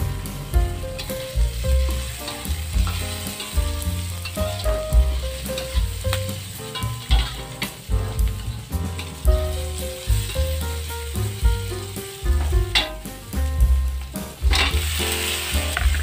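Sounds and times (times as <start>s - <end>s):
background music with deep beat: 0.0s - 16.0s
vegetables sizzling in oil: 0.0s - 16.0s
metal spatula scraping a wok: 1.0s - 9.3s, 14.5s - 16.0s.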